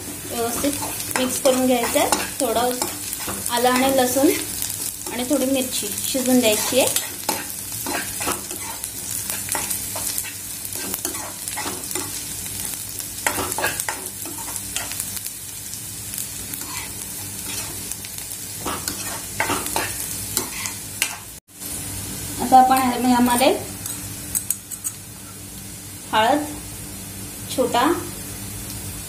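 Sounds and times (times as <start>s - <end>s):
food sizzling in oil: 0.0s - 29.0s
metal spoon scraping pan: 6.3s - 12.2s, 16.6s - 17.8s, 18.6s - 21.2s, 23.8s - 25.4s.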